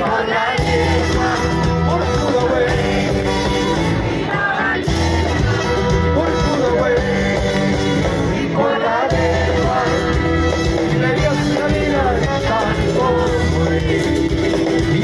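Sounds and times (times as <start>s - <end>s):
acoustic guitars: 0.0s - 15.0s
drums: 0.0s - 15.0s
person singing: 0.0s - 15.0s
repeating bass line: 0.0s - 15.0s.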